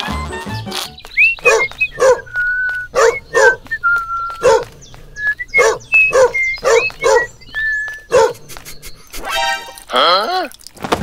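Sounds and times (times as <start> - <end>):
dog barking: 1.4 - 2.3, 2.9 - 3.7, 4.4 - 4.7, 5.6 - 7.3, 8.1 - 8.4.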